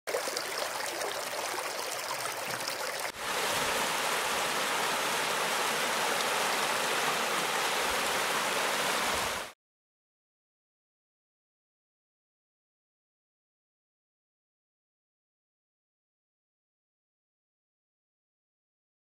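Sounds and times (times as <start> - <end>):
river water rushing: 0.1 - 9.5
small water splashes: 0.1 - 9.5.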